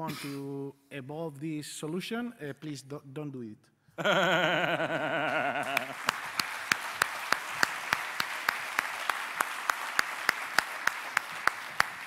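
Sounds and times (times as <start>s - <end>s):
audience applause: 4.6s - 12.0s
loud steady clap: 4.8s - 12.0s.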